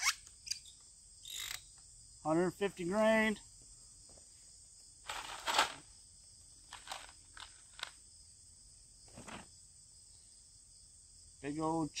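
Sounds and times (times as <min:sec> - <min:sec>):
high-pitched insect chorus: 0:00.0 - 0:12.0
handling rustles and clicks: 0:05.1 - 0:05.8, 0:06.7 - 0:08.0.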